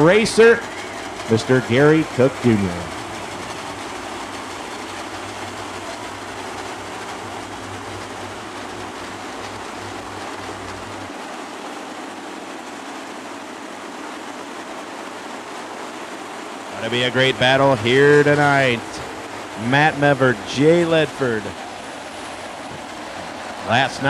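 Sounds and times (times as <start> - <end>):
race car engines droning: 0.0 - 11.1, 16.8 - 24.0
low hum: 0.0 - 12.7.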